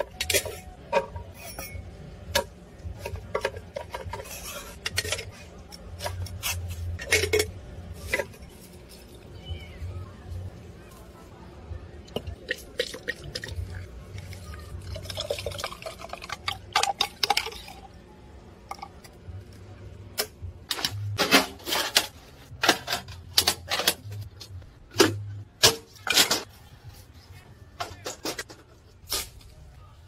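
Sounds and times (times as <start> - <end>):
juice dripping into glass jar: 12.2 - 18.0.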